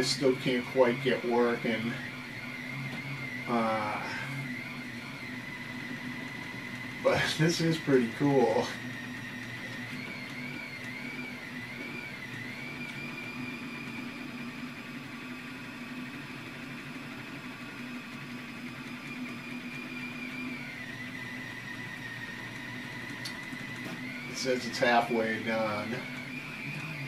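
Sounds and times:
steady low hum: 0.0 - 27.0
stepper motors whining: 0.0 - 27.0.

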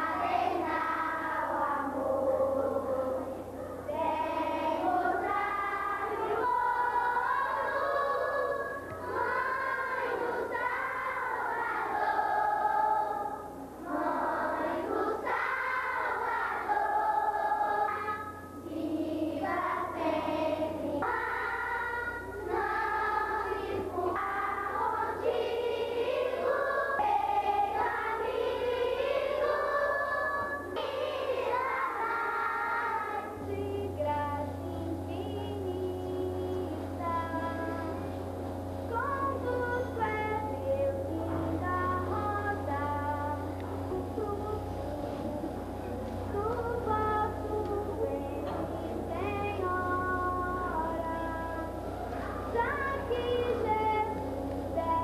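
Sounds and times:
children singing a hymn: 0.0 - 38.3, 38.9 - 55.0
steady low hum: 0.0 - 55.0.

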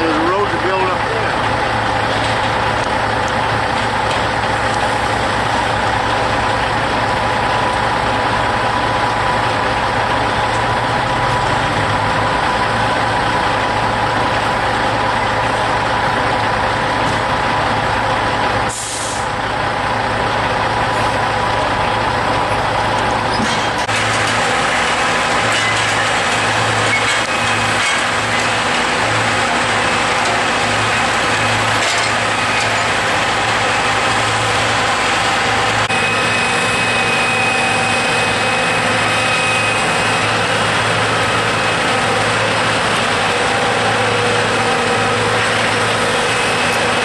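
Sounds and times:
truck diesel engine running: 0.0 - 47.0
air release hiss: 18.7 - 19.3.

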